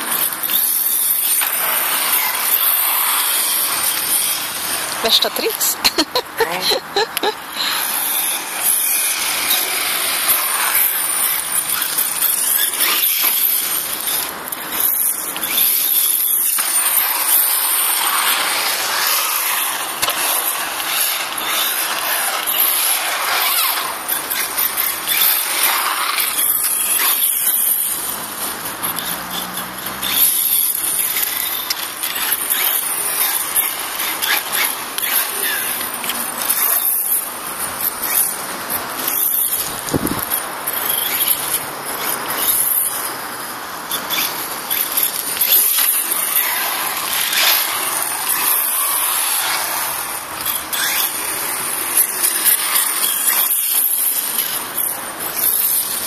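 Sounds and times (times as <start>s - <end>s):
rc truck motor whine: 0.0s - 6.0s, 7.1s - 56.0s
tyre hiss on asphalt: 7.2s - 36.5s, 45.2s - 56.0s.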